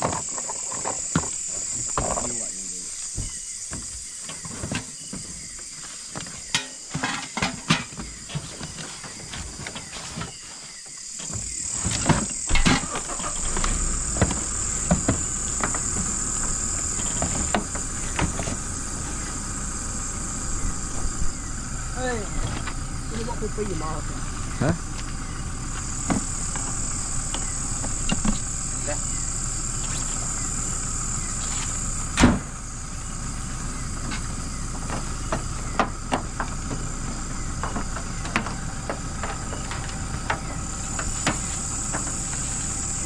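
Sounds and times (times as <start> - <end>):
cargo knocks and clunks: 0.0 - 19.3, 24.5 - 28.5, 32.2 - 32.6, 34.0 - 42.5
night insects chorus: 0.0 - 43.0.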